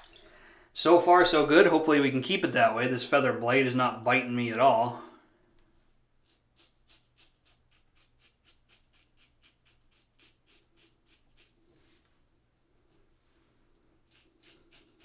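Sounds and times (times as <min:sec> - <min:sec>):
razor scraping stubble: 0:06.2 - 0:11.6, 0:14.0 - 0:15.0.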